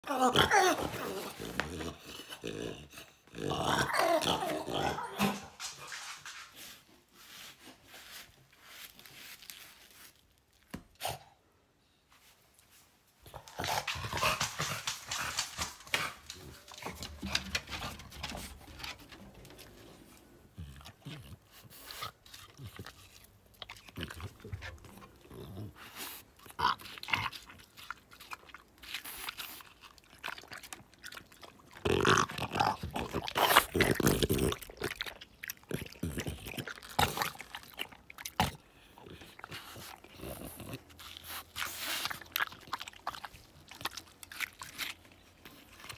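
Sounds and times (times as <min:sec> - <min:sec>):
dog breathing and grunting: 0:00.0 - 0:06.2, 0:13.3 - 0:44.0
dog licking and chewing: 0:13.2 - 0:45.9.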